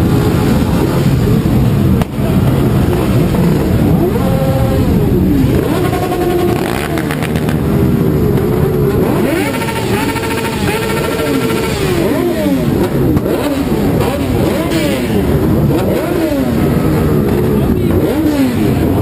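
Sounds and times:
motorcycle engines revving: 0.0 - 19.0.

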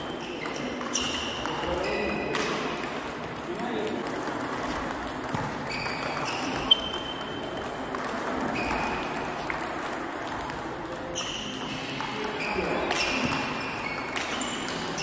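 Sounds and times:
shoes squeaking on floor: 0.0 - 2.4, 5.3 - 7.6, 8.3 - 9.5, 11.0 - 15.0
table tennis ball clicking: 0.0 - 15.0.

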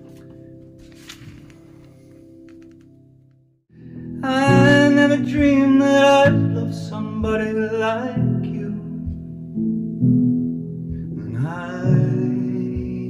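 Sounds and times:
keyboard chords: 0.0 - 13.0
man singing: 4.2 - 9.3, 11.2 - 13.0.

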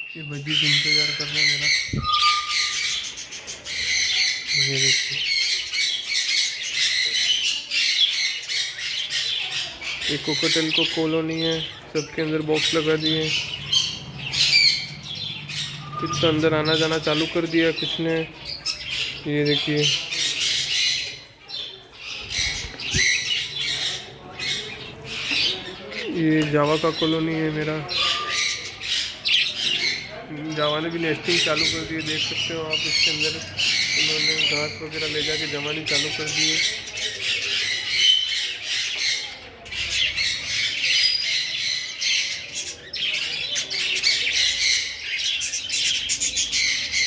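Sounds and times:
small birds chattering: 0.0 - 47.0
cockatiels squawking: 0.7 - 8.8, 27.9 - 30.1.

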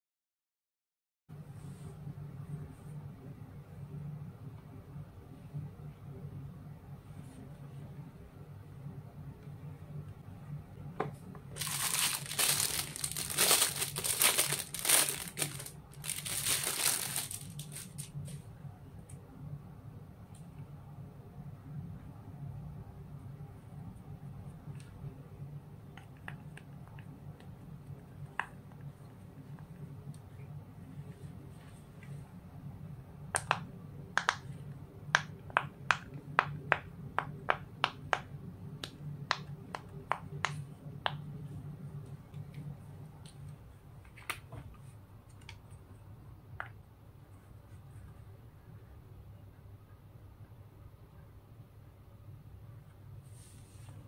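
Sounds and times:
plastic bag crinkling: 11.6 - 18.2.

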